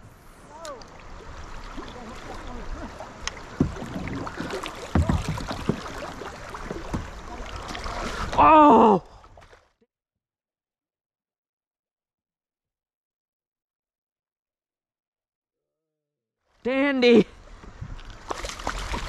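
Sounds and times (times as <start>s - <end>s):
river current rushing: 0.0s - 8.7s
dull knocks: 3.4s - 7.2s.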